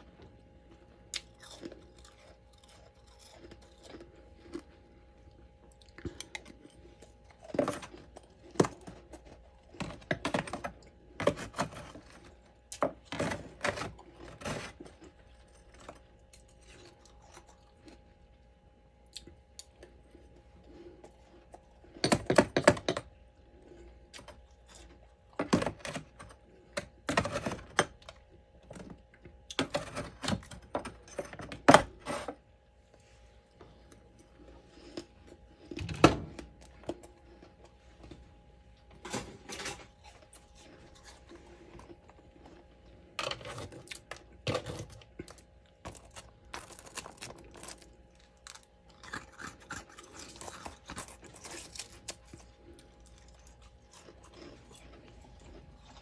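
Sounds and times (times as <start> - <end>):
crunching of frost and ice chunks: 39.8 - 56.0.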